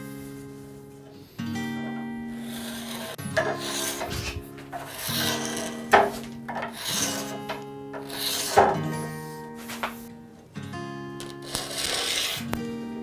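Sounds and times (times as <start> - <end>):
card scraper rasping on wood: 2.4 - 9.9, 11.3 - 12.5.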